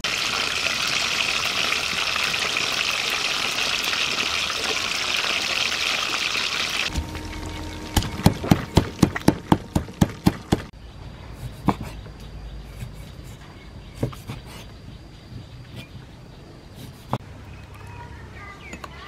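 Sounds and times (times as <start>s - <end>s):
pestle pounding in wooden mortar: 8.0s - 10.7s.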